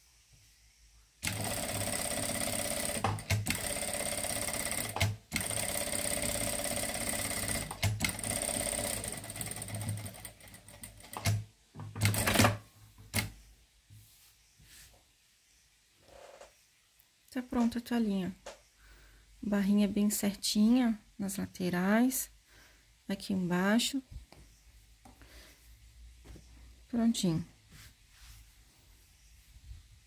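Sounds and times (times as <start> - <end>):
sewing machine stitching: 1.2 - 11.4, 12.0 - 12.6.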